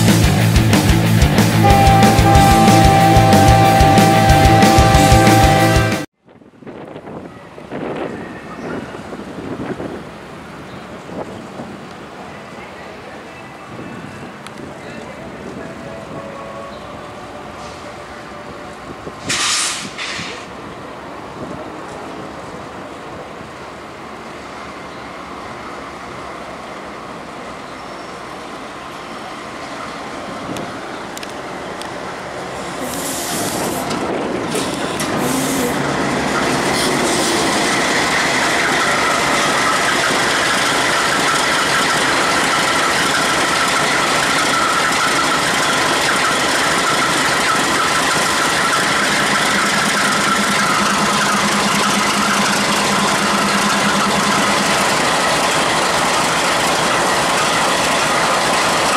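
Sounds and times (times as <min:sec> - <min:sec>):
freight locomotives rumbling: 0:00.0 - 0:58.9
steady high whine: 0:34.9 - 0:58.9.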